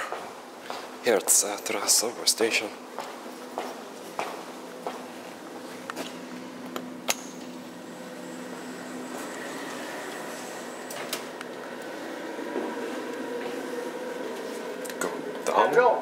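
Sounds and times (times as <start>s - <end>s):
elevator machinery hum: 0.0s - 16.0s
faint high whine: 6.6s - 15.8s.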